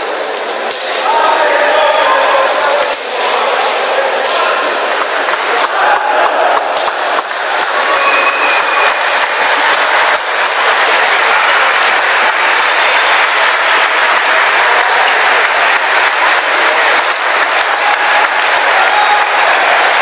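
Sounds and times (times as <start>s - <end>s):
crowd applauding: 4.4s - 20.0s.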